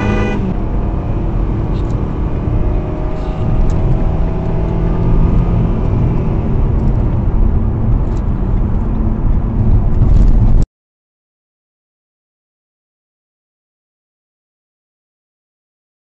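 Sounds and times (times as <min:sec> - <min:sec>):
car engine: 0:00.0 - 0:10.6
road noise: 0:00.0 - 0:10.6.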